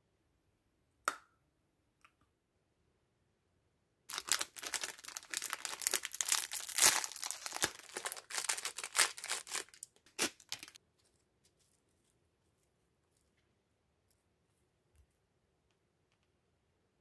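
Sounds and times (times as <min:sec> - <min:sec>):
foil wrapper crinkling and tearing: 0:04.1 - 0:10.8.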